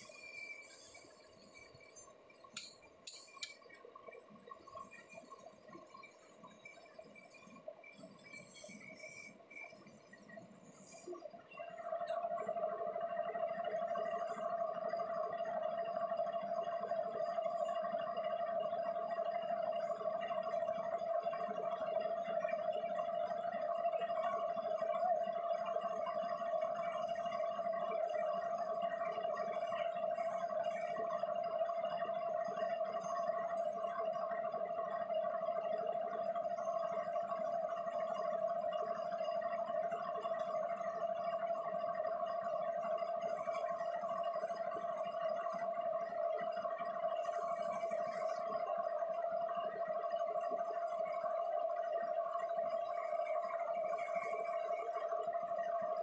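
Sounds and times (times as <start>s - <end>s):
faint machine shop background: 0.0s - 15.6s, 25.9s - 31.8s, 42.7s - 56.0s
faint ticks and rattles: 0.0s - 56.0s.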